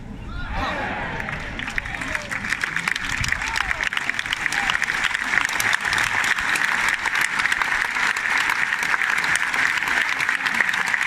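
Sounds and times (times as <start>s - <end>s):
crowd applauding: 1.2s - 11.0s.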